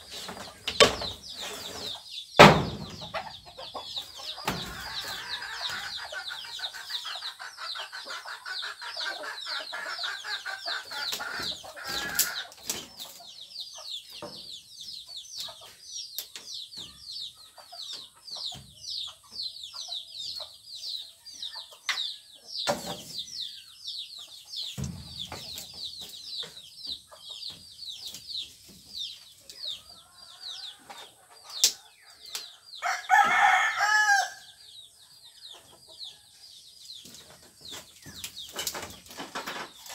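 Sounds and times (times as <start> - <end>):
chickens clucking: 0.0 - 39.9
chicks peeping: 0.0 - 39.9
knocks on bamboo wall panel: 2.4 - 3.0.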